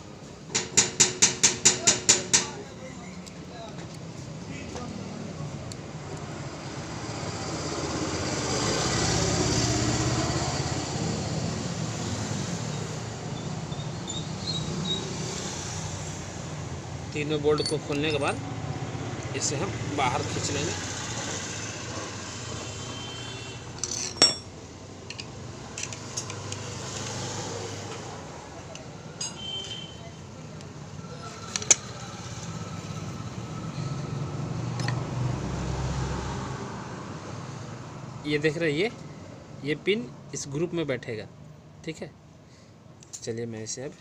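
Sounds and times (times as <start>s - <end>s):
metal parts clinking: 17.5s - 18.3s, 23.8s - 24.5s, 25.1s - 26.4s.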